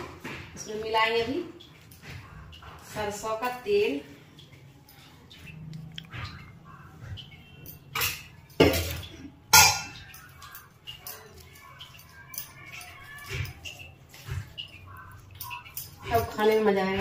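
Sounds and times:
hand mixing food on steel plate: 0.8s - 17.0s
steel utensils clinking on dishes: 7.2s - 17.0s.

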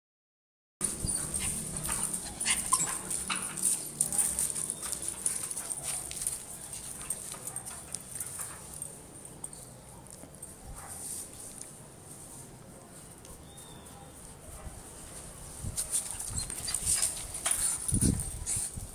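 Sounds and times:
small dog yipping and whimpering: 0.8s - 3.5s, 16.0s - 17.1s.

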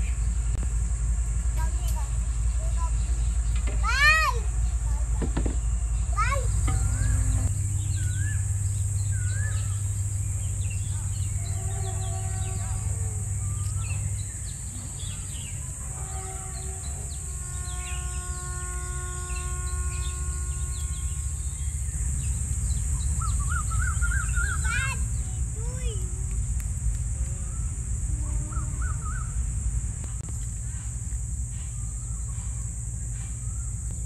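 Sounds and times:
steady high hiss: 0.0s - 34.0s
birds chirping and calling: 1.7s - 25.8s, 27.3s - 29.4s
low rumble: 4.4s - 15.8s, 20.0s - 34.0s.

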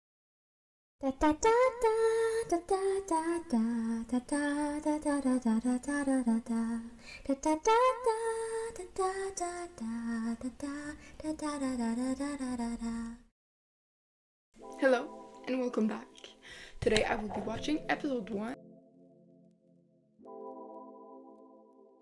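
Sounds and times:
woman singing slow melody: 1.0s - 13.2s.

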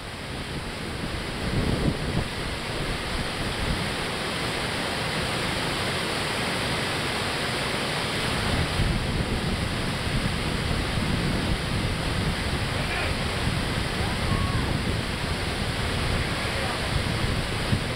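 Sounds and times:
wind rumble on microphone: 0.0s - 4.5s, 8.2s - 17.9s
water rushing over dam: 0.0s - 17.9s.

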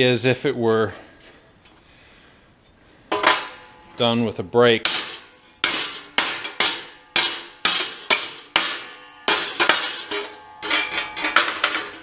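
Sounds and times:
hammer striking steel plate: 3.1s - 4.1s, 4.8s - 12.0s.

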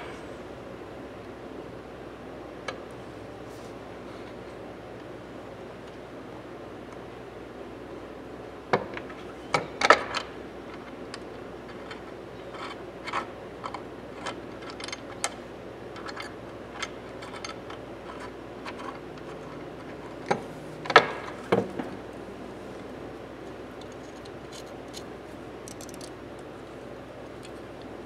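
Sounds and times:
metal pliers clicking and clinking: 23.8s - 26.1s.

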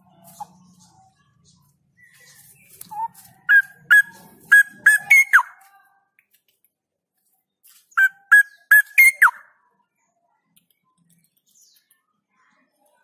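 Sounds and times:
bird singing short phrases: 7.9s - 12.9s.

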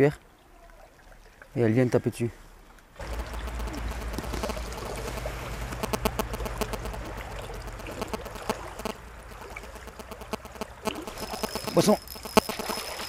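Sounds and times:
stream water running: 0.0s - 13.0s
fishing reel clicks: 3.0s - 13.0s.

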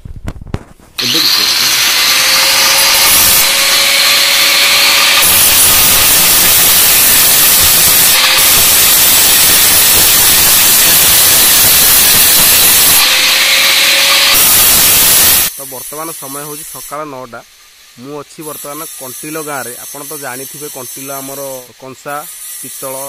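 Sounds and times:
angle grinder grinding metal: 0.9s - 23.0s
grinder motor whine: 1.0s - 15.5s.

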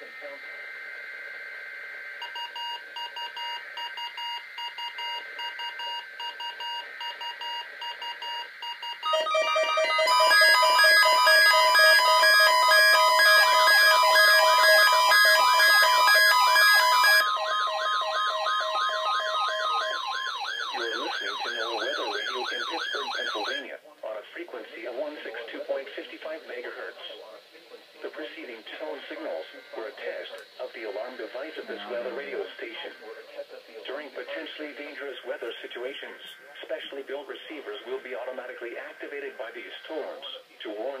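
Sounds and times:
rapid electronic beeping: 2.2s - 23.6s
siren-like warble: 9.0s - 23.6s.

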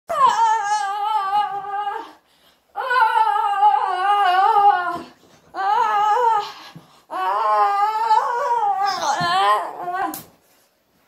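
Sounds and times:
person wailing high-pitched: 7.1s - 10.2s.

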